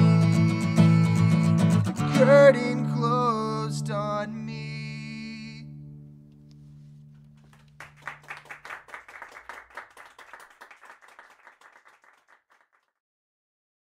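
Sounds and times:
acoustic guitar chord ringing: 0.0 - 7.2
audience clapping: 7.3 - 13.0.

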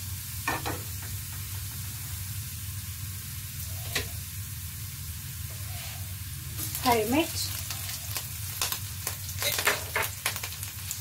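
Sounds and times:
garlic sizzling in oil: 0.0 - 11.0
oil crackle: 4.9 - 11.0.

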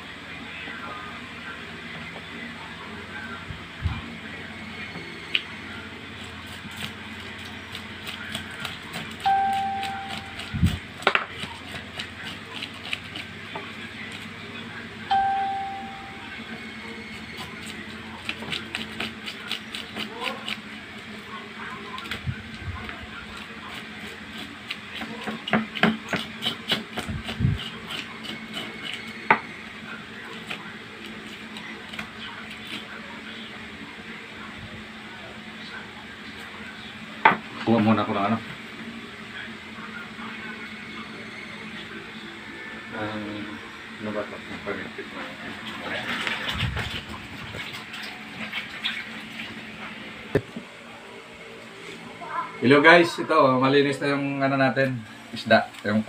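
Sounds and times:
electronic beep: 15.1 - 16.4
knife scraping fish scales: 26.1 - 29.2.

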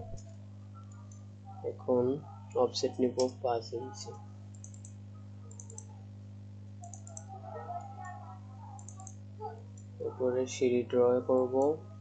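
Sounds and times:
low electrical hum: 0.0 - 12.0
computer mouse clicking: 4.5 - 5.9, 6.8 - 7.9, 8.8 - 9.9.

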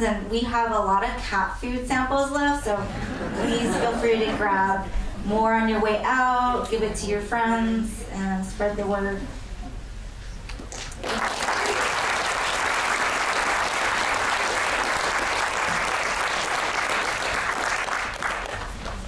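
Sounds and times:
audience applauding: 10.5 - 19.0.

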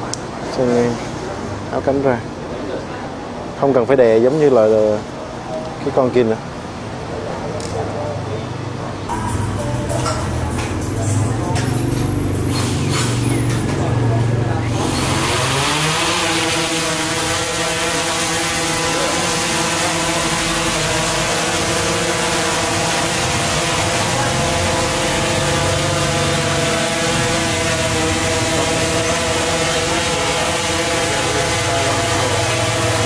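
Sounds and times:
drone hovering buzz: 9.1 - 33.0.

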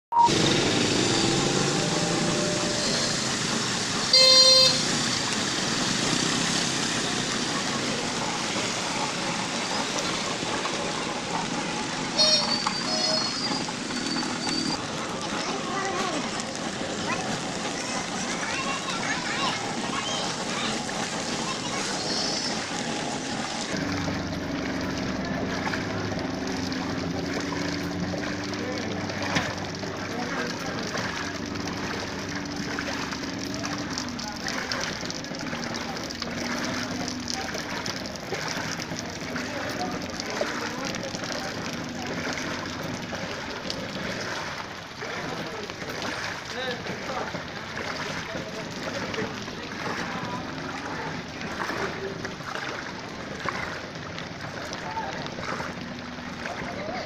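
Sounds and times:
traffic noise: 0.1 - 57.0
vehicles driving through water: 0.1 - 57.0
motorcycle engine: 0.2 - 57.0
vehicle horn honking: 4.1 - 5.0, 12.2 - 13.2.

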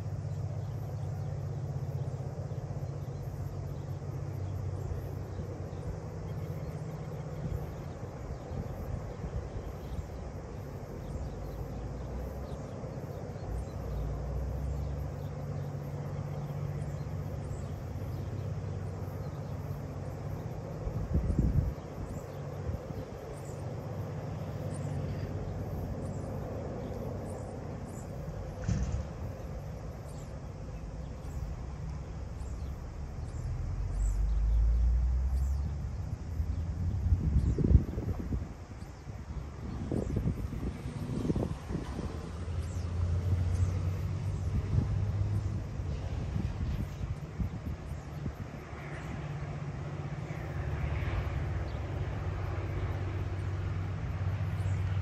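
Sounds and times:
low engine hum: 0.0 - 55.0
wind rumble on microphone: 0.0 - 55.0
birds chirping: 0.2 - 40.6
wind on microphone: 20.8 - 23.1, 32.6 - 49.3
faint bird chirps: 32.3 - 35.8.

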